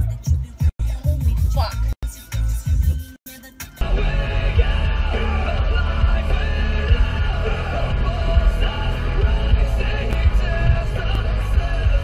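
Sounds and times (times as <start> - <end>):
heavy bass beat: 0.0 - 3.0, 3.8 - 12.0
rock music: 1.7 - 12.0
shouted singing: 3.8 - 12.0.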